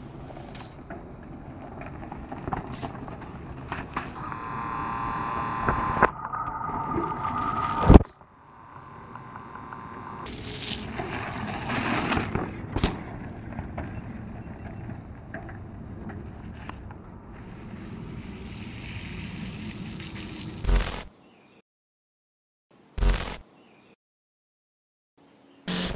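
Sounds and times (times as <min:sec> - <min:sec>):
bike tyre rolling noise: 0:00.0 - 0:20.8
buzz: 0:04.2 - 0:06.1, 0:07.8 - 0:10.4, 0:25.7 - 0:25.9.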